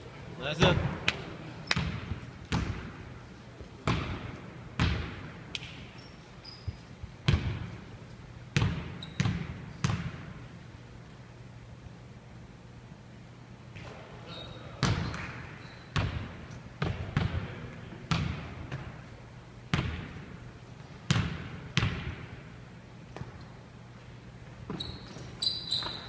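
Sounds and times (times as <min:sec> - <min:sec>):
basketball bouncing on wooden floor: 0:01.7 - 0:02.9, 0:03.8 - 0:05.3, 0:06.6 - 0:07.8, 0:08.6 - 0:10.4, 0:16.0 - 0:17.5, 0:18.1 - 0:18.9, 0:19.7 - 0:20.2, 0:21.1 - 0:22.3.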